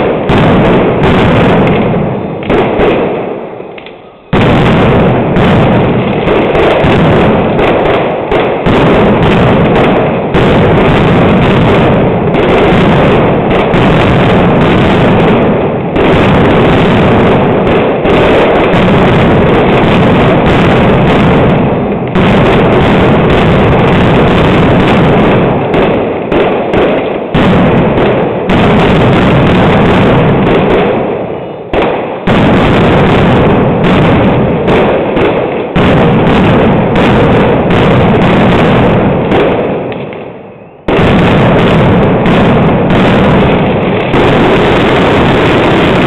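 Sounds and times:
firecrackers exploding: 0.0s - 46.0s.

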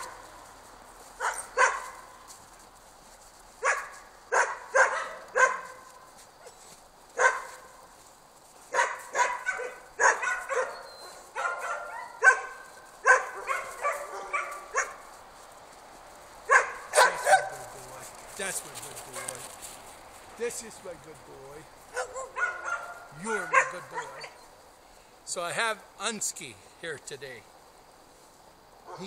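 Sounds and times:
dogs barking: 0.0s - 0.4s, 1.2s - 2.2s, 3.6s - 7.9s, 8.6s - 15.2s, 16.4s - 17.9s, 19.1s - 19.5s, 21.9s - 24.4s.

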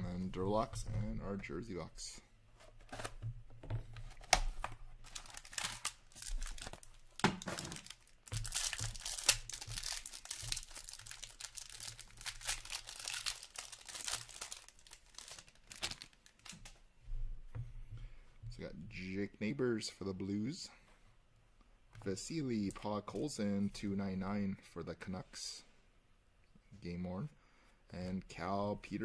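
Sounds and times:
foil wrappers crinkling and tearing: 5.0s - 16.7s.

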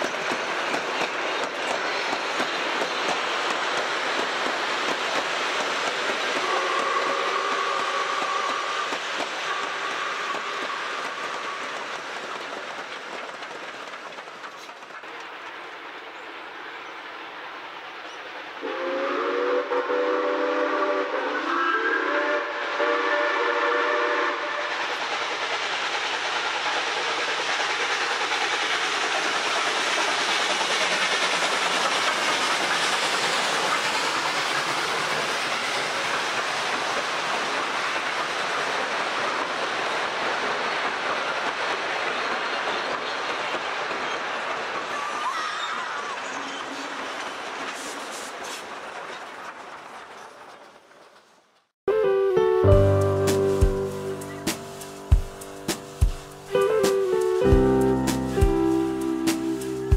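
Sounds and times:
train carriages rumbling on rails: 0.0s - 51.7s, 52.7s - 59.9s
steam locomotive whistle: 6.3s - 12.0s, 18.6s - 24.9s, 51.9s - 55.1s, 56.5s - 59.9s.

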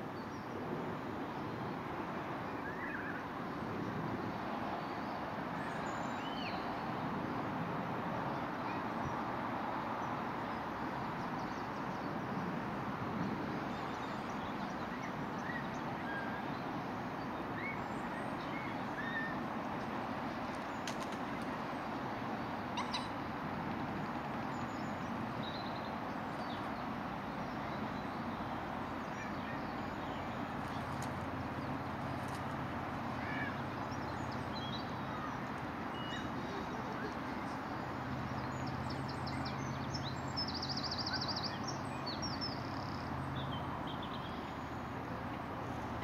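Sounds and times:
outdoor background noise: 0.0s - 46.0s
faint bird chirps: 22.8s - 23.2s.

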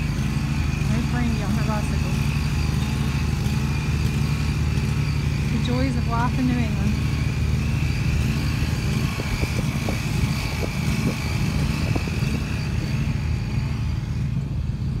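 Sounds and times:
high whine: 0.0s - 15.0s
riding mower engine running: 0.0s - 15.0s.

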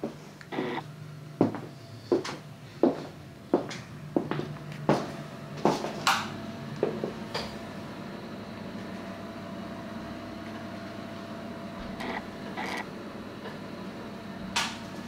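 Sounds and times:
steady low hum: 0.0s - 15.0s
short squeaky creak: 11.8s - 12.8s.

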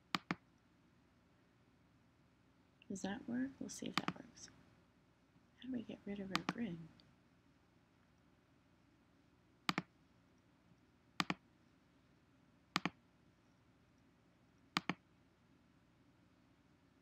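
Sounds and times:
computer mouse clicking: 0.1s - 0.4s, 3.9s - 4.2s, 6.3s - 6.7s, 9.7s - 9.9s, 11.2s - 11.4s, 12.7s - 13.0s, 14.6s - 15.0s.

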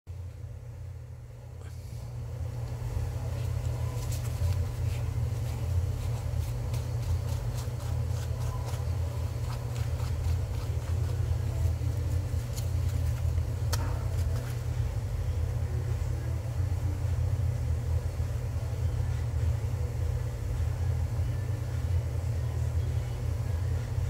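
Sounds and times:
low mechanical hum: 0.1s - 24.0s
brush scratching on foam: 3.1s - 14.8s.

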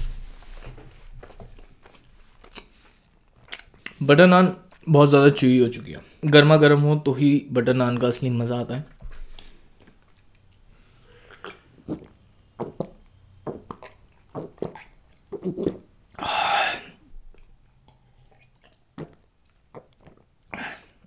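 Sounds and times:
person gulping a drink: 11.1s - 15.9s, 16.5s - 21.0s.

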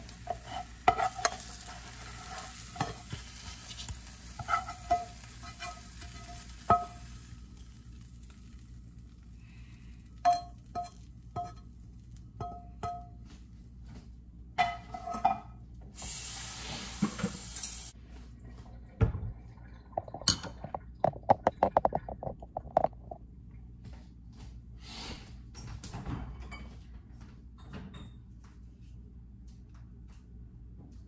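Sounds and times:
utensil scraping a skillet: 0.0s - 8.4s, 14.6s - 18.0s
dishes and glass clinking: 12.4s - 13.4s, 19.8s - 23.2s, 26.0s - 27.0s, 27.6s - 28.3s
hiss: 16.0s - 17.9s.

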